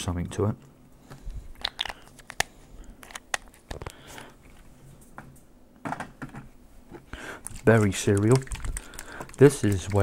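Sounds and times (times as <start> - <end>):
plastic cap twisting clicks: 1.6 - 4.0.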